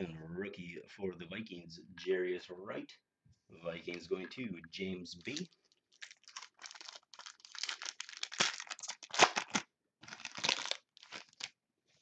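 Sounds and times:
foil wrapper tearing and crinkling: 5.9 - 11.6.

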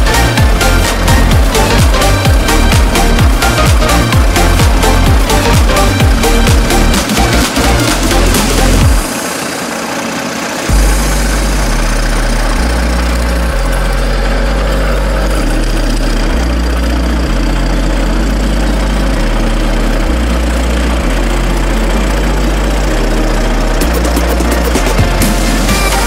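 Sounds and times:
music with deep bass line: 0.0 - 9.4, 10.7 - 26.0
dense steady noise: 0.0 - 17.3.

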